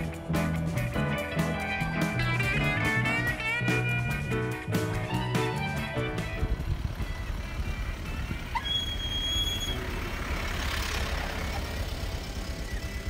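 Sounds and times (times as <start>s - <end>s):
distant traffic: 0.0s - 13.0s
wind on microphone: 6.3s - 8.4s.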